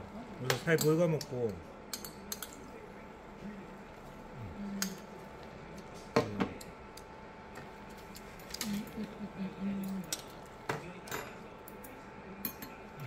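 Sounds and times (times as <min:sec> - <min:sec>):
spoons clinking against metal pot: 0:00.5 - 0:02.6.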